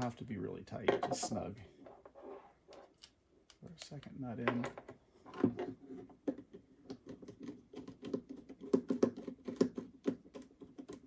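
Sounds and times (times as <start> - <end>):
plastic parts clicking and tapping: 2.7 - 11.0.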